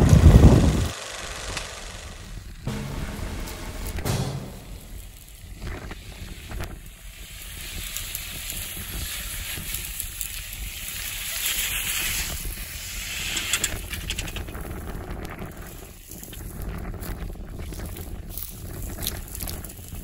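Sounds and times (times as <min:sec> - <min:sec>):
tyres crackling over dry grass: 0:06.7 - 0:12.9, 0:14.4 - 0:20.0.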